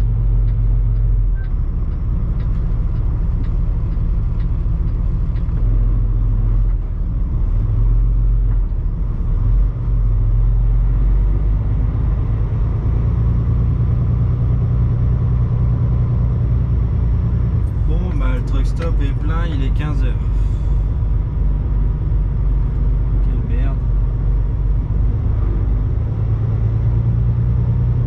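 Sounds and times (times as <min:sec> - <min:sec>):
diesel truck engine droning: 0:00.0 - 0:28.0.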